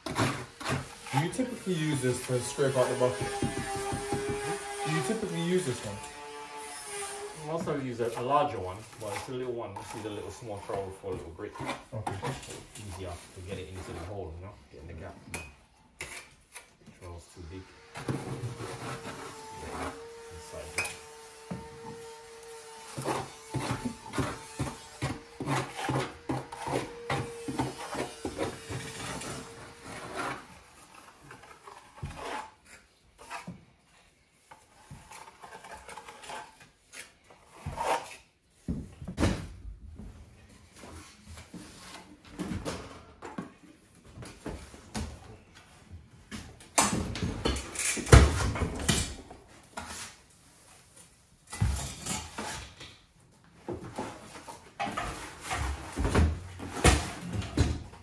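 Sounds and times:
trowel scraping in a bucket: 0:00.0 - 0:06.0, 0:07.0 - 0:14.3, 0:22.9 - 0:33.6, 0:34.5 - 0:38.4.

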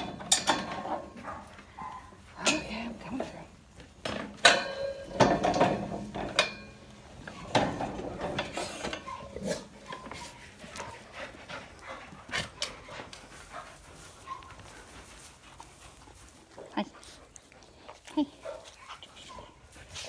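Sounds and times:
dogs whining: 0:08.3 - 0:11.1.

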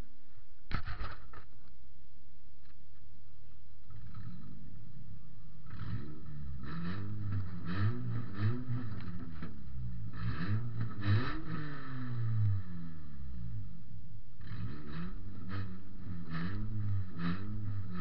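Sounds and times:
car engine revving: 0:03.9 - 0:18.0.

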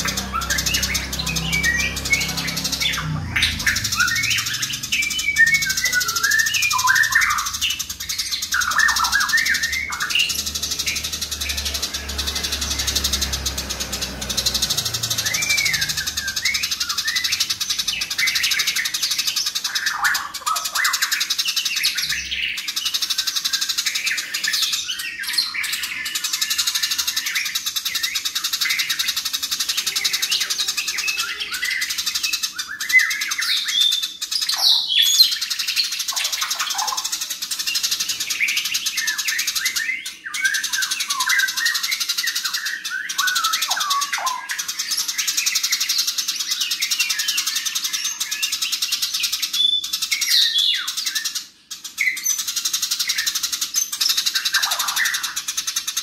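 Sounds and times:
sharp bird calls: 0:00.0 - 0:56.0
sparrows chattering: 0:00.0 - 0:56.0.

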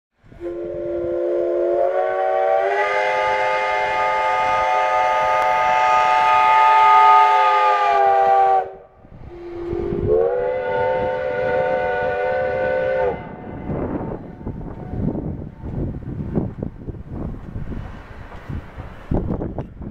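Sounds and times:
steam locomotive whistle chord: 0:00.3 - 0:14.1.

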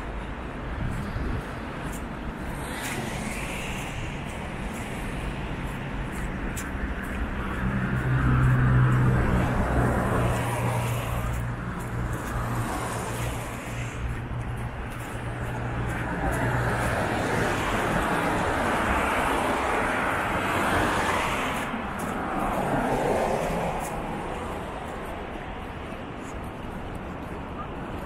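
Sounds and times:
cars passing on wet road: 0:00.0 - 0:28.0.

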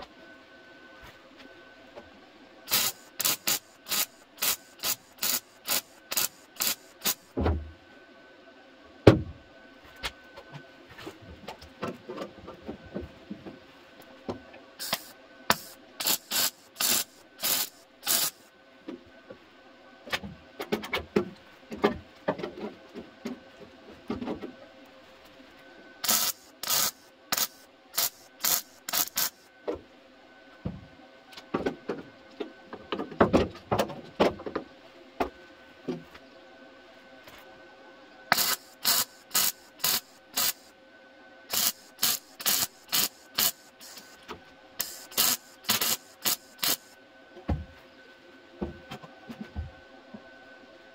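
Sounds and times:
welding crackling bursts: 0:02.7 - 0:07.3, 0:14.8 - 0:18.4, 0:26.0 - 0:29.4, 0:38.3 - 0:40.7, 0:41.5 - 0:44.2, 0:44.8 - 0:46.9.

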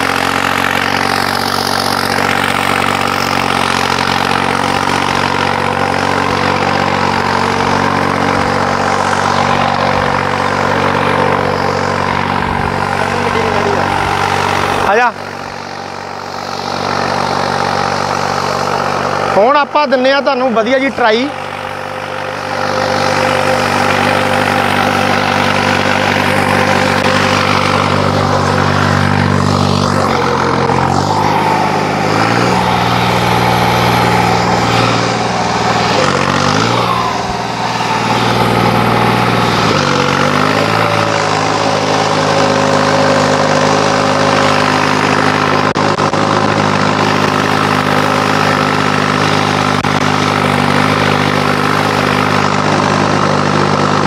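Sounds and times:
tractor diesel engine under load: 0:00.0 - 0:54.0.

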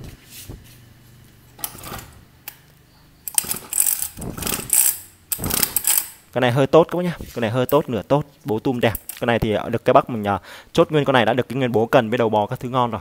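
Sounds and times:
recoil starter pulled: 0:03.3 - 0:06.3.

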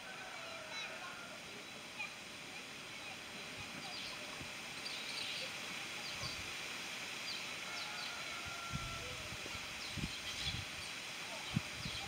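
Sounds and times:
steady outdoor hiss: 0:00.0 - 0:12.0
birds chirping: 0:00.8 - 0:06.5.

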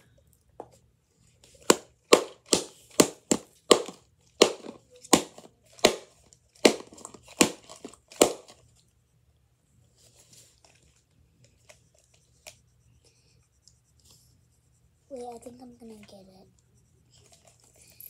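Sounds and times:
sharp plastic cracks: 0:01.7 - 0:08.6.

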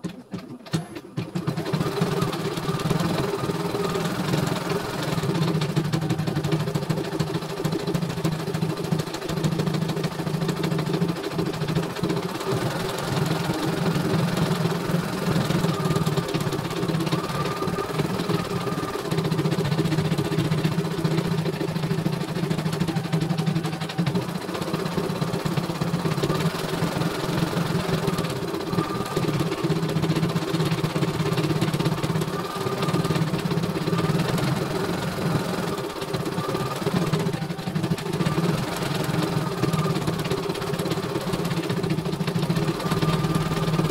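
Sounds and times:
embroidery machine needle rattle: 0:00.0 - 0:43.9
motor hum: 0:00.0 - 0:43.9.

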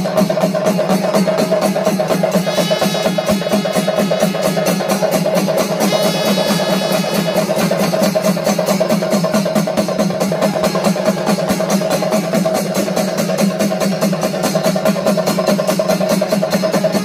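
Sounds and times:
drums and hand cymbals playing: 0:00.0 - 0:17.0
high ringing tones: 0:02.4 - 0:09.4.

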